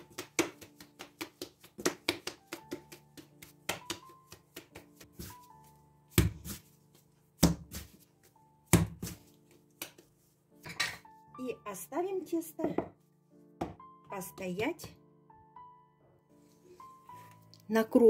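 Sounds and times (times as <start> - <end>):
dough slapping and thumping: 0.0 - 10.2
soft background music: 0.0 - 18.0.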